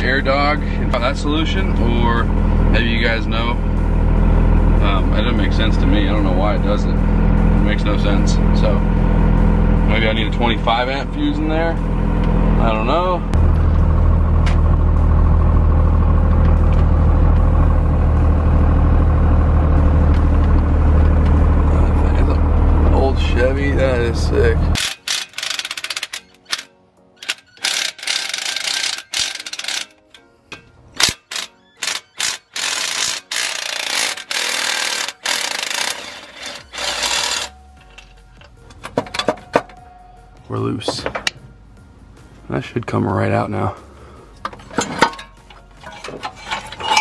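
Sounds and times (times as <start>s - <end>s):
diesel engine drone from cab: 0.0s - 24.8s, 32.0s - 42.6s, 43.7s - 46.4s.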